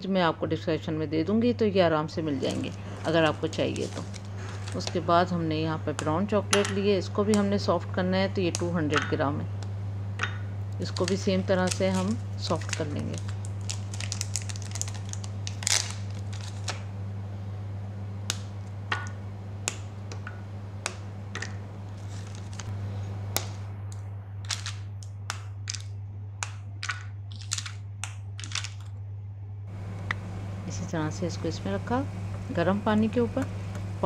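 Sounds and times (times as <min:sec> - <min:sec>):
steady low hum: 0:00.0 - 0:34.0
chocolate bar snapping: 0:10.9 - 0:16.9, 0:18.3 - 0:21.6, 0:23.4 - 0:28.9.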